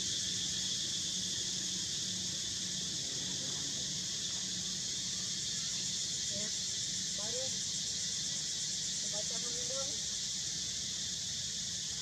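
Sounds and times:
high-pitched insect chorus: 0.0s - 12.0s.

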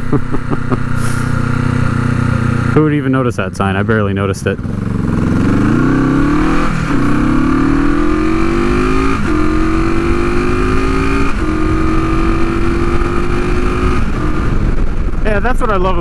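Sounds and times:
motorcycle engine accelerating: 0.0s - 16.0s
wind rumble on microphone: 4.6s - 16.0s.

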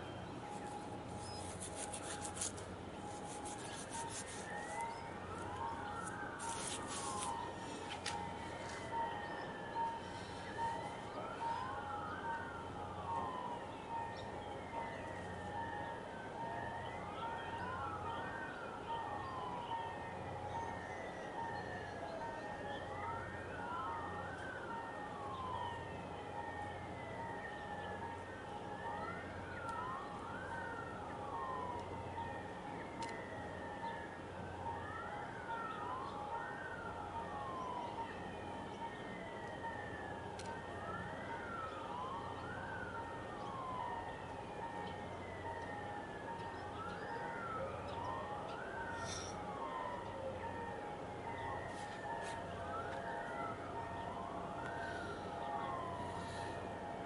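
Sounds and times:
wailing siren: 0.0s - 57.0s.

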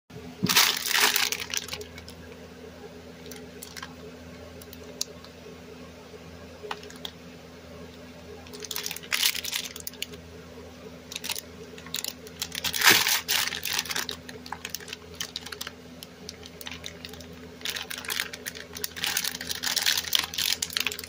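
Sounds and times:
plastic bag crinkling: 0.4s - 2.4s, 3.1s - 5.2s, 6.6s - 7.2s, 8.4s - 10.2s, 11.1s - 21.0s.

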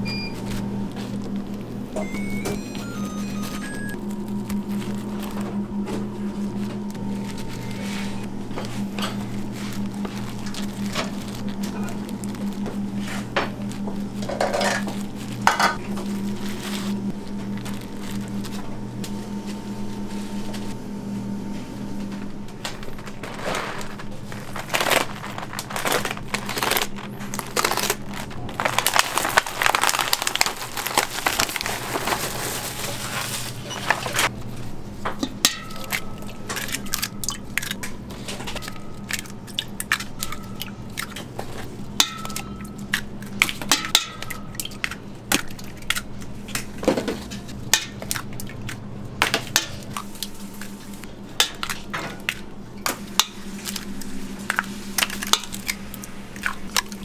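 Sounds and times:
steady low hum: 0.0s - 57.0s
plastic film crinkling: 3.5s - 19.1s, 22.8s - 34.3s.

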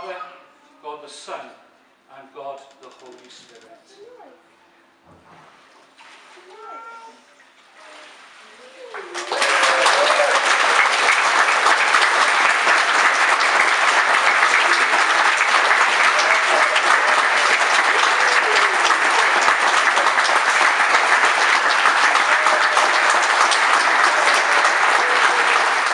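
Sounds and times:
crowd applauding: 8.9s - 25.9s
faint voices: 13.2s - 25.9s.

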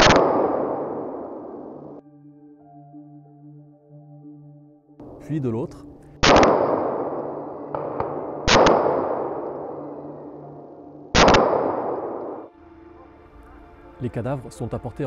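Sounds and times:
gunshots: 0.0s - 2.0s, 6.2s - 10.3s, 11.2s - 12.5s
echo rolling through forest: 0.0s - 15.0s.

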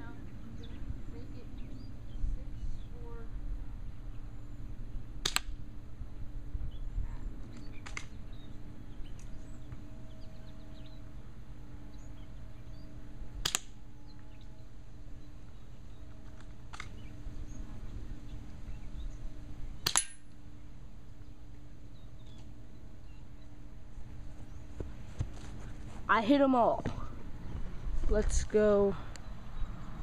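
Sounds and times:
airsoft pellets snapping on target: 5.2s - 5.5s, 13.4s - 13.7s, 19.8s - 20.2s.

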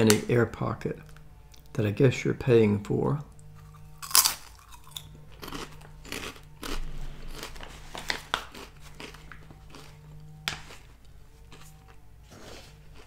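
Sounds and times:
crunchy snack chewing: 3.5s - 13.0s.

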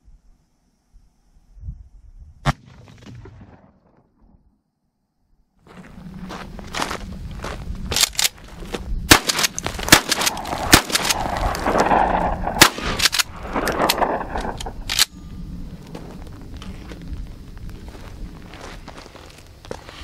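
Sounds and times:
shotgun shots: 9.1s - 14.2s.

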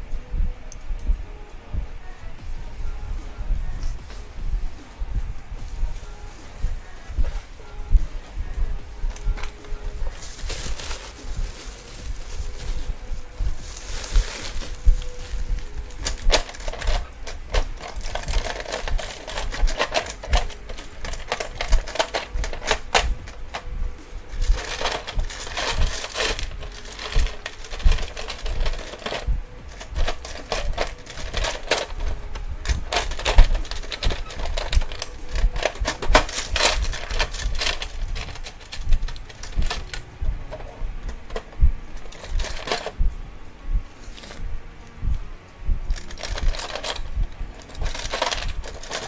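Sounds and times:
plastic bag rustling: 9.1s - 43.0s, 45.9s - 49.0s
plastic building blocks clicking: 16.0s - 23.7s, 24.3s - 40.6s, 41.3s - 42.9s, 45.9s - 49.0s.

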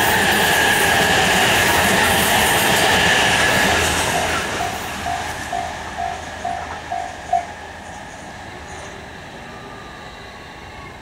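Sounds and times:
train passing at speed: 0.0s - 11.0s
level crossing warning bell: 3.6s - 8.1s.

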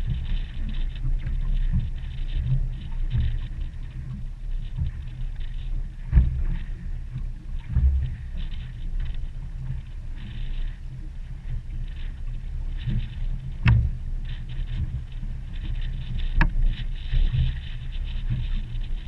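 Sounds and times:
water lapping against boat hull: 0.0s - 19.0s
wind rumbling on microphone: 0.0s - 19.0s
knocks on boat: 13.6s - 14.0s.

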